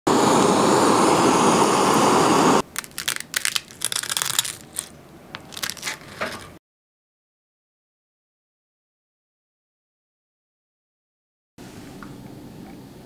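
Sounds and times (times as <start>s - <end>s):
blowtorch blowing: 0.0s - 2.7s
spoon cracking caramel crust: 2.6s - 6.5s.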